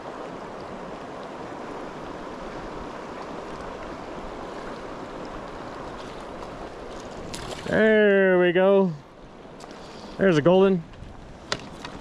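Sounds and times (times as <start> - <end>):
creek water rushing over rocks: 0.0 - 12.0.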